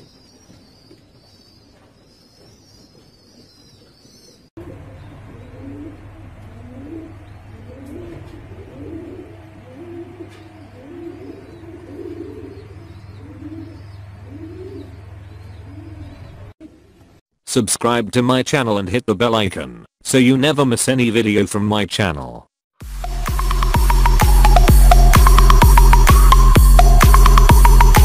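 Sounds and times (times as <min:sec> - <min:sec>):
pigeons cooing: 0:01.6 - 0:17.2
steady low hum: 0:04.6 - 0:16.6.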